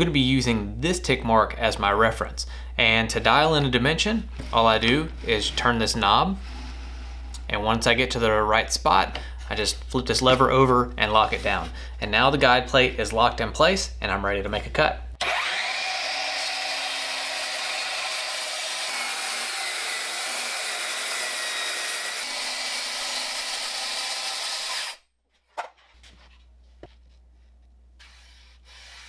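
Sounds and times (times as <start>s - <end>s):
circular saw cutting board: 15.2s - 25.0s, 28.0s - 29.0s.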